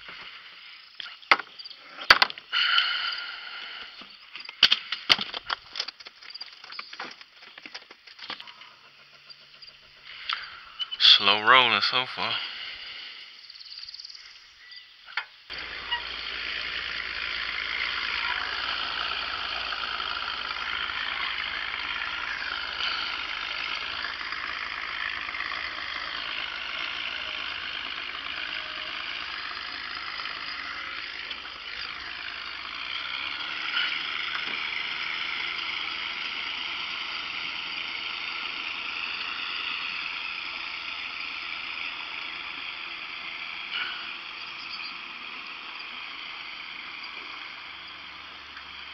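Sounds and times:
small boat motor running: 0:00.0 - 0:14.6, 0:15.4 - 0:48.9
low hum: 0:15.5 - 0:48.9.

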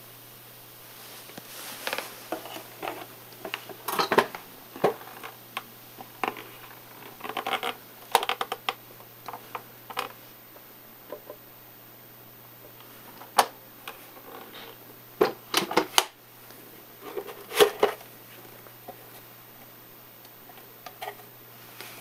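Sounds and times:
plastic clicks and rattles: 0:07.1 - 0:10.2.

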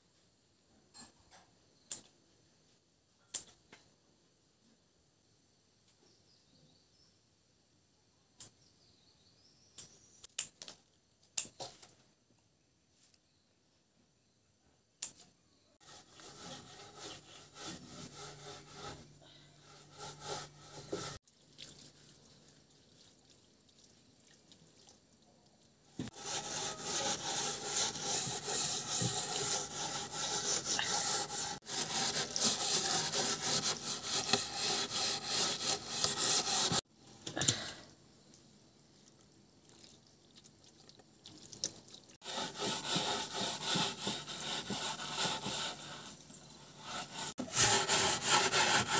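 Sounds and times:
scrubbing wet wooden boards: 0:26.0 - 0:36.8, 0:42.2 - 0:48.9.

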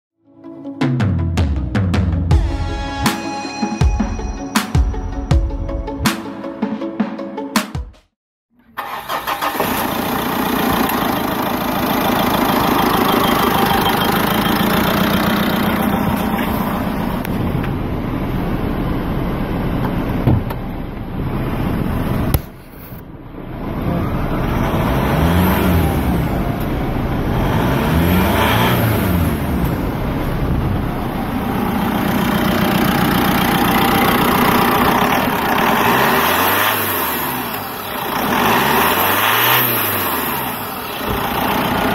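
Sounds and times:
car engine idling and revving: 0:08.6 - 0:41.9.

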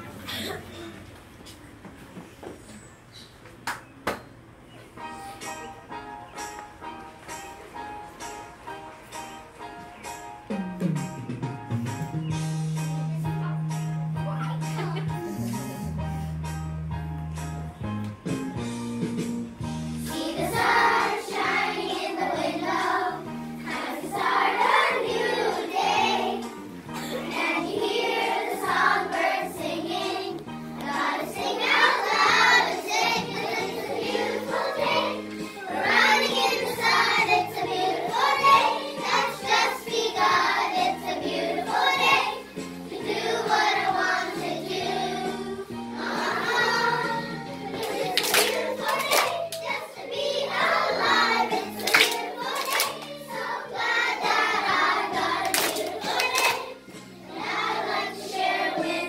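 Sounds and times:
instrumental accompaniment: 0:05.0 - 0:44.4
children singing in unison: 0:20.1 - 0:59.0.

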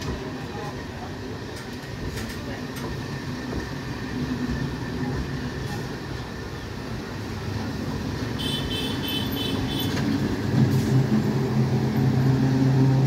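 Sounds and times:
train wheels rumbling on rails: 0:00.0 - 0:13.0
train motor low hum: 0:09.6 - 0:13.0.

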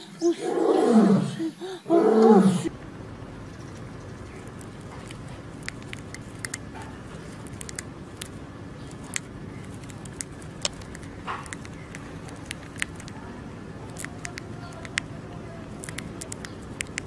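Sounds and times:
background hiss: 0:00.0 - 0:02.7
hamster nibbling food: 0:04.3 - 0:17.0.

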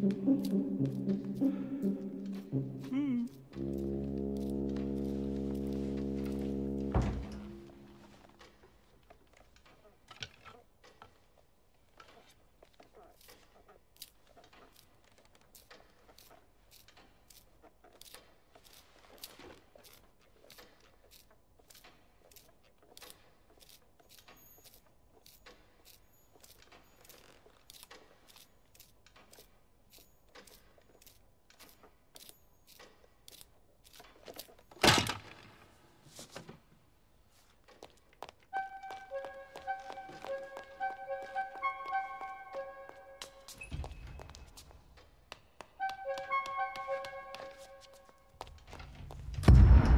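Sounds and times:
loud thud: 0:49.2 - 0:49.9.

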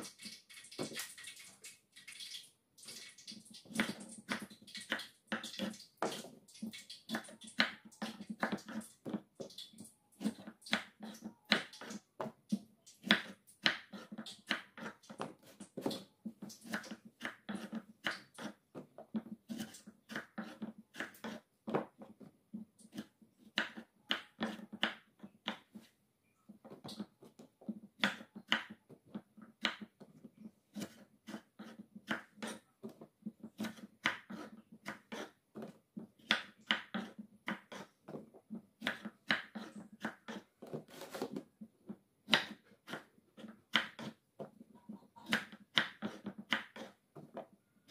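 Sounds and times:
knife chopping on wooden board: 0:13.0 - 0:22.2, 0:22.9 - 0:25.9, 0:26.6 - 0:30.0, 0:30.7 - 0:41.4, 0:42.2 - 0:47.9.

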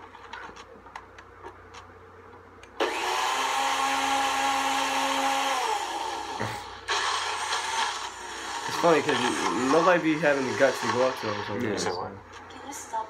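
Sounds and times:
electric blender running: 0:02.8 - 0:11.9.

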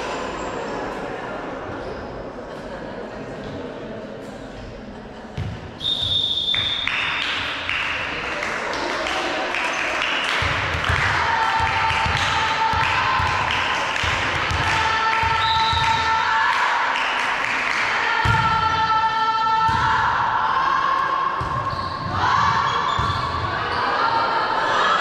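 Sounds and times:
whistle blast: 0:05.8 - 0:06.9
crowd shouting and cheering: 0:06.0 - 0:25.0.

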